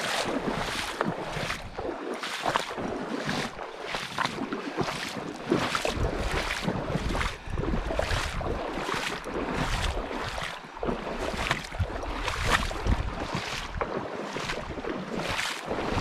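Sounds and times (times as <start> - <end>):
wind buffeting microphone: 0.0 - 2.0, 5.8 - 10.0, 11.6 - 14.9, 15.7 - 16.0
river running over rocks: 0.0 - 2.4, 15.6 - 16.0.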